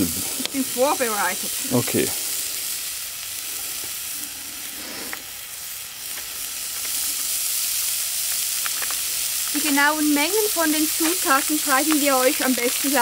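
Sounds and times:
onions and bacon sizzling in oil: 0.0 - 13.0
small pops: 8.2 - 9.6, 10.9 - 12.9.

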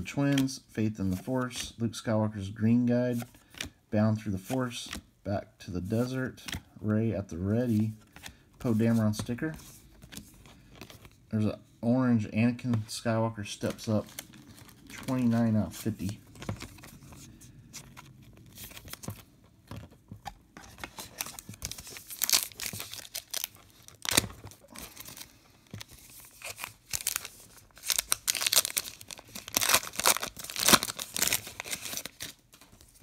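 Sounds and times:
wrapper tearing and crinkling: 21.0 - 25.2, 26.1 - 32.5.

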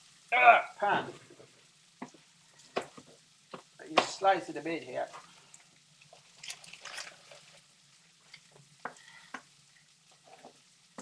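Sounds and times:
meat sizzling in a pan: 0.0 - 11.0
wooden spatula tapping a pan: 1.3 - 4.2, 8.8 - 9.5, 10.4 - 11.0.

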